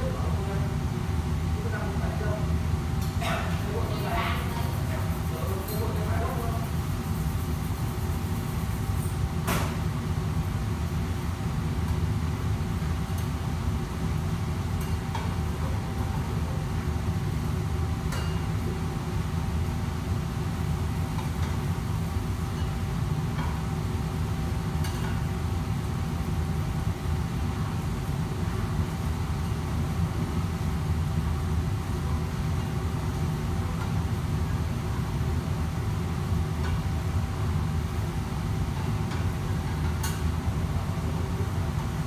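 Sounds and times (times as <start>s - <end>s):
steady hum: 0.0s - 42.0s.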